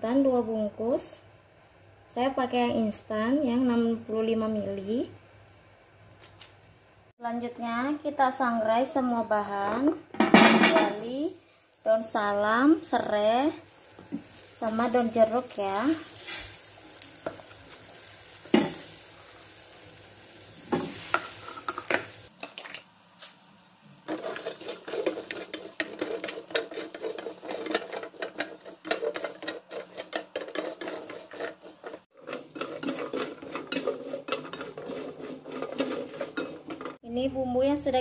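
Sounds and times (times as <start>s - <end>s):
spatula scraping spices in a pan: 10.8s - 22.3s, 23.2s - 37.0s
seeds pouring into a pan: 13.3s - 22.3s.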